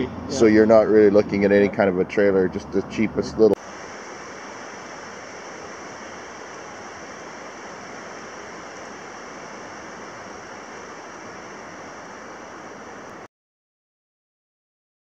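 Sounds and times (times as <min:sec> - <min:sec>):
steady rushing noise: 0:02.5 - 0:13.3.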